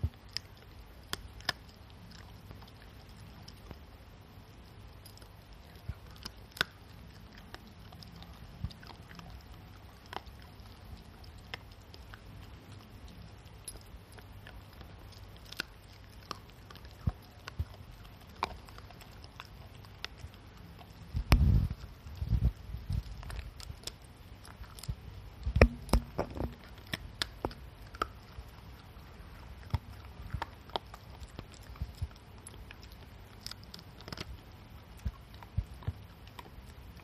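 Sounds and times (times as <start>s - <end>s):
dog chewing hard treat: 25.6s - 36.9s.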